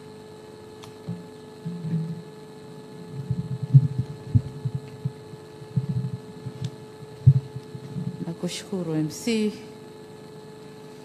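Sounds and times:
electrical hum: 0:00.0 - 0:11.0
microphone handling thumps: 0:03.0 - 0:08.3.

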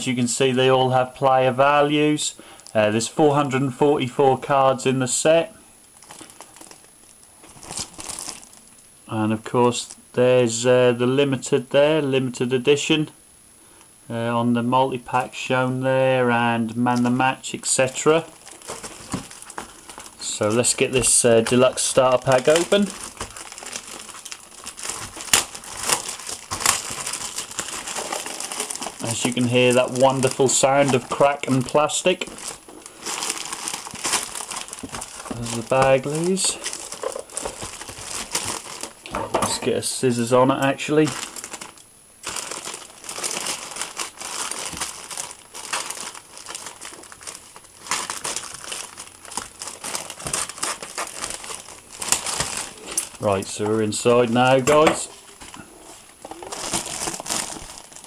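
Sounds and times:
plastic shrink-wrap crinkling: 0:05.8 - 0:08.9, 0:16.9 - 0:58.0.

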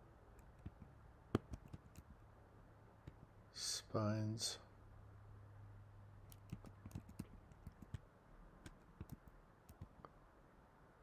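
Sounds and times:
faint low hum: 0:00.0 - 0:11.0
computer keyboard tapping: 0:00.4 - 0:02.2, 0:06.3 - 0:08.0, 0:08.6 - 0:10.1.

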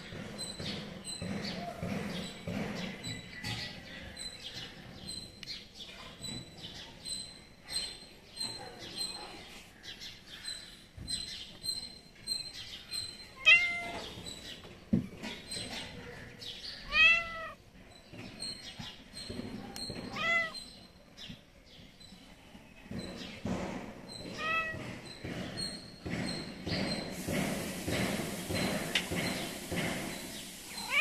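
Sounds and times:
cat meowing: 0:13.4 - 0:14.0, 0:16.9 - 0:17.6, 0:20.1 - 0:20.6, 0:24.4 - 0:24.8.

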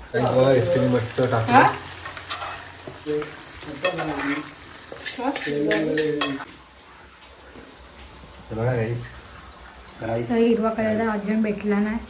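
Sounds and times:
food sizzling in a pan: 0:00.0 - 0:06.6.

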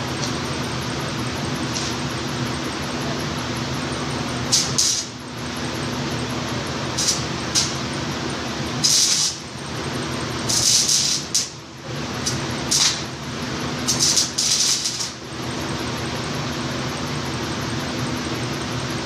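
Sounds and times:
welding arc crackling: 0:04.4 - 0:05.2, 0:06.9 - 0:08.0, 0:08.7 - 0:09.5, 0:10.4 - 0:11.6, 0:12.2 - 0:13.2, 0:13.8 - 0:15.2.

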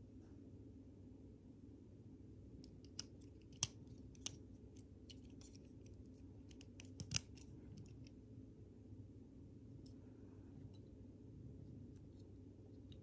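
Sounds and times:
plastic pieces clicking: 0:05.1 - 0:08.0.

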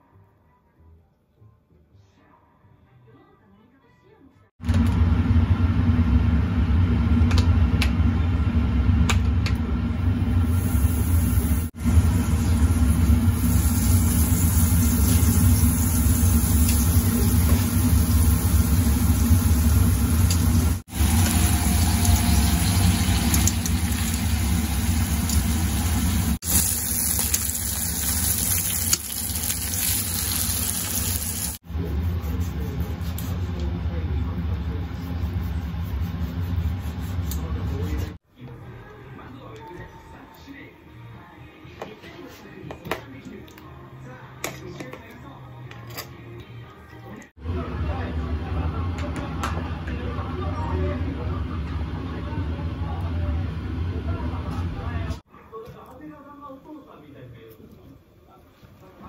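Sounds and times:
beef searing in a frying pan: 0:10.4 - 0:31.6.

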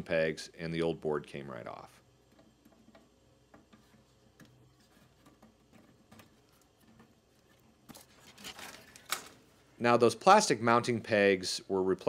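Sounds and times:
rustling: 0:02.8 - 0:09.7.

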